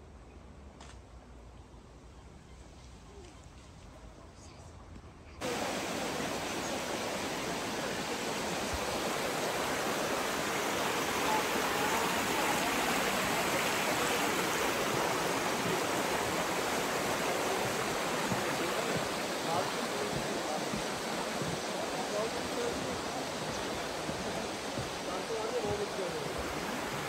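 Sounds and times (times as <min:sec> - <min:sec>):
stream water flowing: 0:05.4 - 0:27.0.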